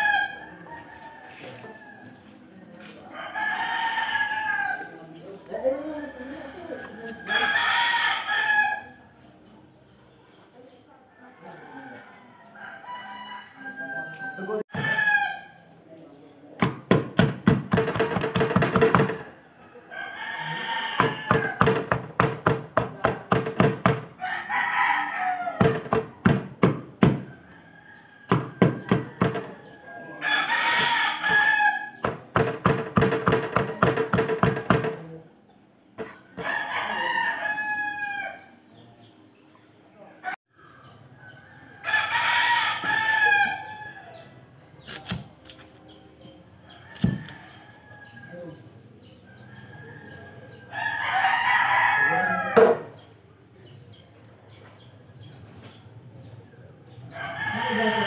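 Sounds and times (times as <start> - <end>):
rooster crowing: 0.0 - 2.1, 3.1 - 5.0, 5.9 - 9.0, 11.2 - 15.5, 19.0 - 21.8, 24.2 - 25.8, 27.2 - 32.0, 36.0 - 38.6, 41.4 - 44.2, 49.3 - 53.0, 57.1 - 58.0.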